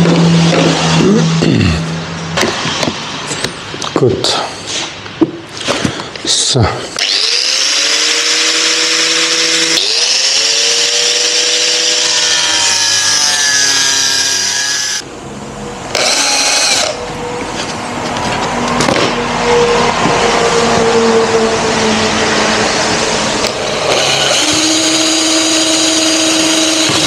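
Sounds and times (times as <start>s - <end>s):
cordless drill running: 7.0s - 15.0s, 15.9s - 17.0s, 23.4s - 27.0s
angle grinder whining: 7.0s - 15.1s, 15.7s - 17.8s, 18.7s - 27.0s.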